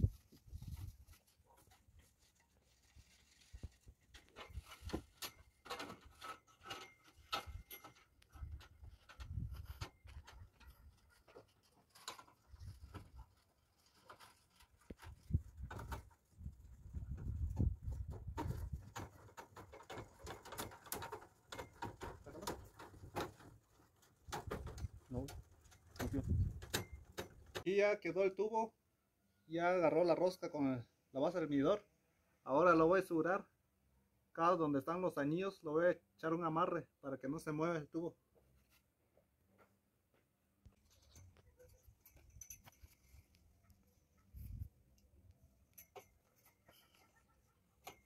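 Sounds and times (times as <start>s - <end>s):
pipe threads clicking and scraping: 0.1s - 27.7s, 40.6s - 48.0s
metal pipe knocking and scraping: 3.7s - 13.3s, 45.7s - 48.0s.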